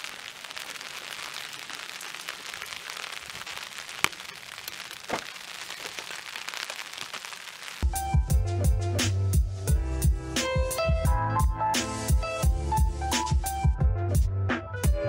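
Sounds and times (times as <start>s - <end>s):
steady rain: 0.0s - 8.2s.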